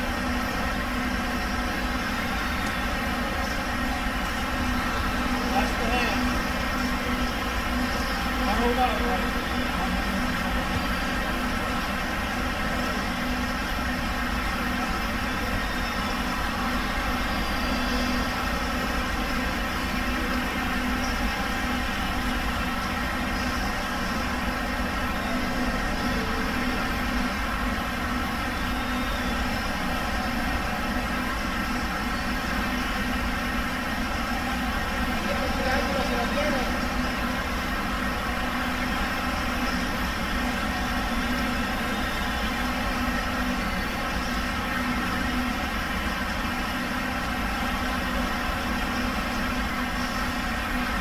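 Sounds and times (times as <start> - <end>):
steady mechanical hum: 0.0 - 51.0.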